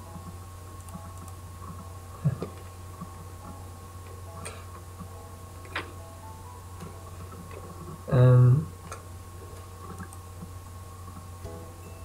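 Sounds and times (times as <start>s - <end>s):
low electrical hum: 0.0s - 12.0s
computer mouse clicks: 0.8s - 1.4s, 9.9s - 10.2s.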